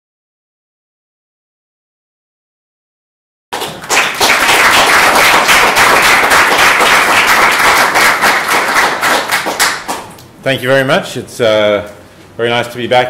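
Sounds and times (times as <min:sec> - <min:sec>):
audience applauding: 0:03.6 - 0:10.2.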